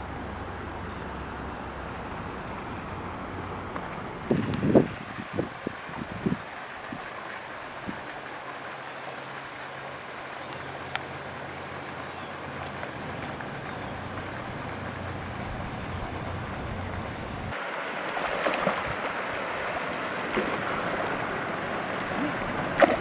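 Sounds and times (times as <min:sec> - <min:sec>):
aerator fountain splashing: 0:00.0 - 0:23.0
fish thrashing at water surface: 0:22.7 - 0:23.0.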